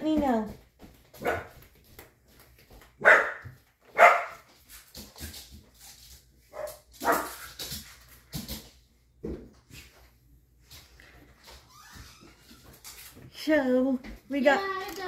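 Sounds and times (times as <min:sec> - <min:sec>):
dog barking: 0:01.2 - 0:01.6, 0:03.0 - 0:04.4, 0:06.5 - 0:07.4.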